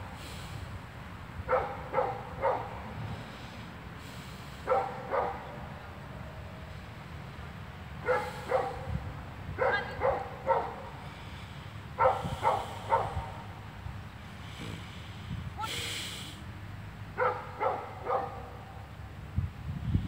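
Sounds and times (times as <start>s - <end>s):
dog barking: 1.5s - 2.8s, 4.7s - 5.6s, 8.0s - 9.0s, 9.6s - 10.9s, 12.0s - 13.4s, 17.2s - 18.7s.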